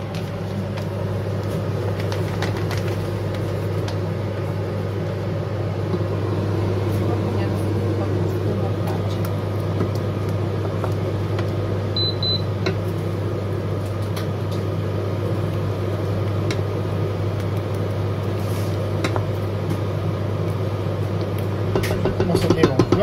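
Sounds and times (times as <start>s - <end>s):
induction hob humming: 0.0s - 23.0s
spoon tapping metal pot: 21.7s - 23.0s.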